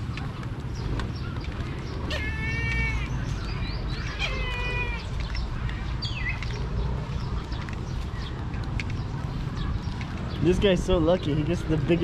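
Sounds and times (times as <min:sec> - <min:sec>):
steady low rumble: 0:00.0 - 0:12.0
meow-like animal calls: 0:02.1 - 0:03.2, 0:04.0 - 0:05.1.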